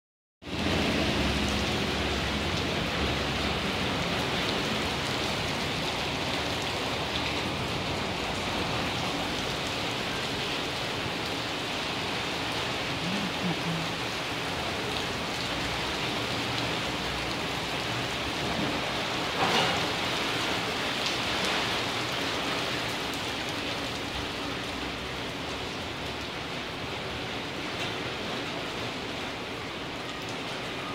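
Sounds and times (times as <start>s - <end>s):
rain on concrete pavement: 0.4s - 30.9s.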